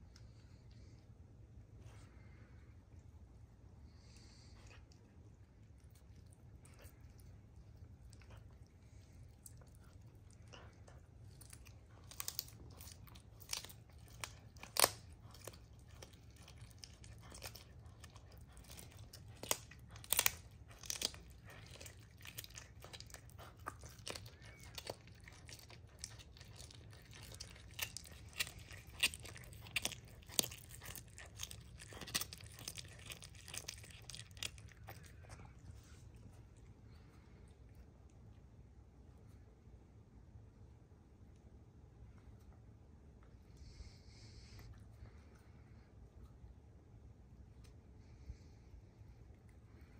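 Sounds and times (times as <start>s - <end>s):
animal crunching bone: 5.7s - 37.2s.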